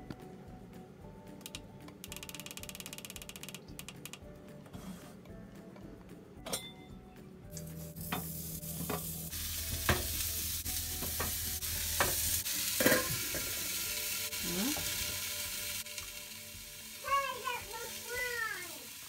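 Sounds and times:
slices sizzling in hot skillet: 0:07.5 - 0:19.0
slices knocking on skillet: 0:09.7 - 0:10.2
lid set on skillet: 0:12.0 - 0:13.6.

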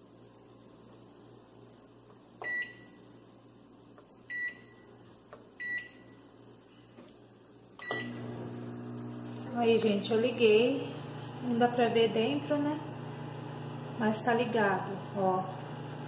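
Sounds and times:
microwave oven humming: 0:00.0 - 0:06.6, 0:07.2 - 0:16.0
microwave button beeps: 0:02.4 - 0:03.0, 0:04.3 - 0:04.8, 0:05.6 - 0:06.2, 0:07.8 - 0:08.3.

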